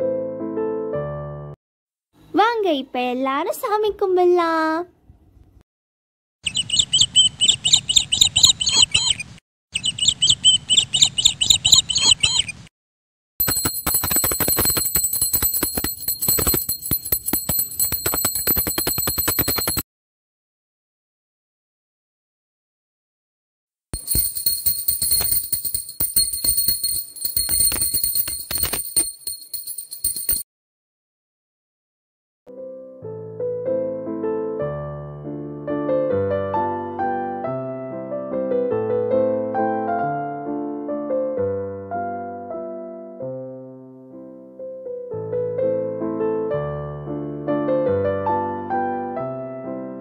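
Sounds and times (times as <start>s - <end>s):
hand bell ringing rapidly: 13.4s - 19.8s, 24.0s - 30.4s.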